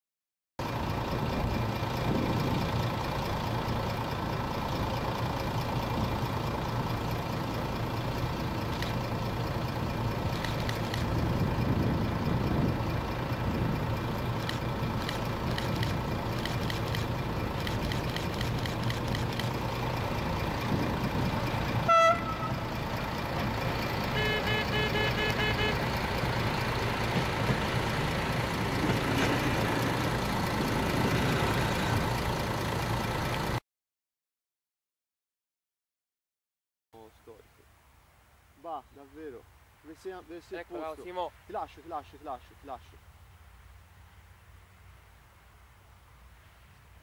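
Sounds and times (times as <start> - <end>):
diesel railcar engine droning: 0.6 - 33.6
train horn blast: 21.8 - 22.8, 24.1 - 25.9.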